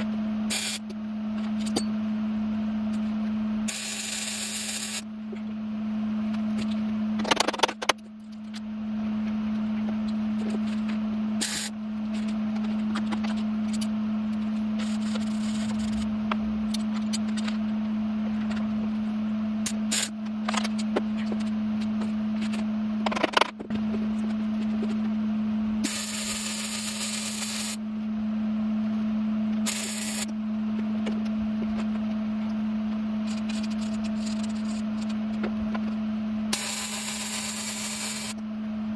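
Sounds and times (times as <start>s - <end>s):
constant hum: 0.0s - 38.9s
welding arc crackling sizzle: 3.7s - 5.1s, 11.4s - 13.8s, 25.8s - 27.8s, 29.7s - 30.3s, 36.5s - 38.4s.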